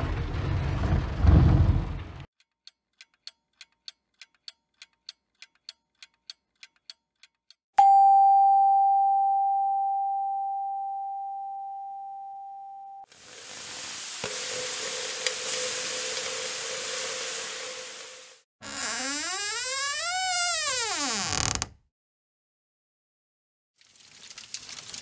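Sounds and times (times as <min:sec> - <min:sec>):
doorbell chime: 0:07.8 - 0:13.1
food sizzling: 0:13.1 - 0:18.5, 0:23.8 - 0:25.0.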